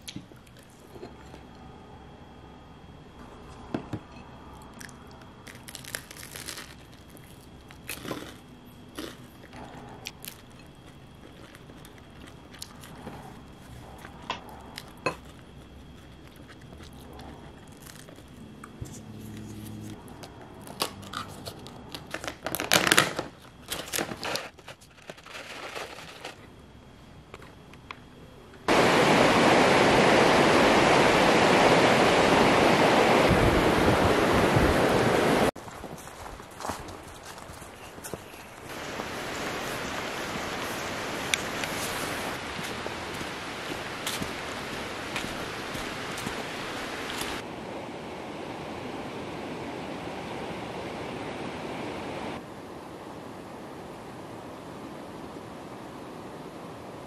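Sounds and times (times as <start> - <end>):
eating sounds: 4.5 - 22.7
river rushing over rocks: 28.7 - 35.5.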